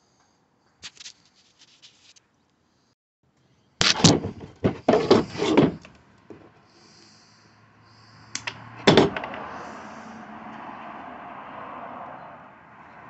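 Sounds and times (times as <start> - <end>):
knocks of hard objects moved: 3.8 - 6.6, 8.4 - 9.6.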